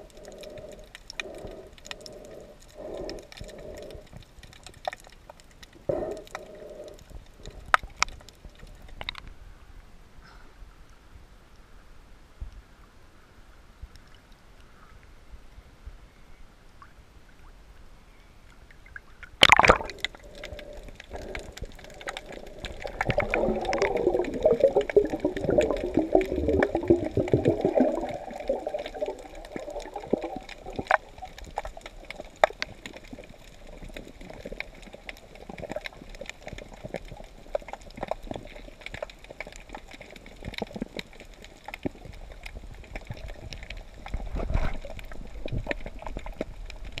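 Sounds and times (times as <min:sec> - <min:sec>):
faint underwater clicks and crackles: 0:00.0 - 0:47.0
underwater gurgling and bubbling: 0:18.9 - 0:47.0
water splash: 0:19.2 - 0:20.2.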